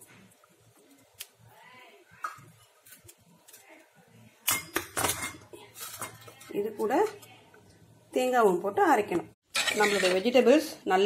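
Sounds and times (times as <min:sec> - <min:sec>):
kitchen utensils clattering: 0:04.5 - 0:07.0, 0:09.5 - 0:10.4.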